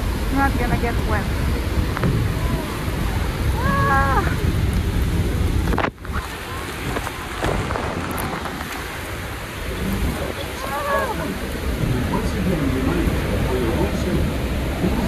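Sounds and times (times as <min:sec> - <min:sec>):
waterfall spray roaring: 0:00.0 - 0:15.0
wind blasting microphone: 0:00.0 - 0:15.0
person shouting: 0:03.6 - 0:04.4, 0:10.6 - 0:11.4.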